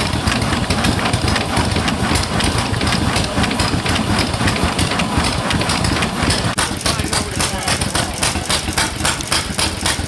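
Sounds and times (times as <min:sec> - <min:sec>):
steam engine beating rhythmically: 0:00.0 - 0:10.0.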